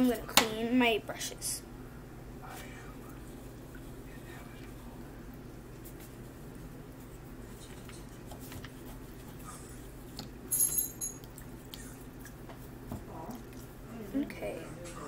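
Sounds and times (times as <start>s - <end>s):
brush clinking against cup: 10.5s - 11.3s.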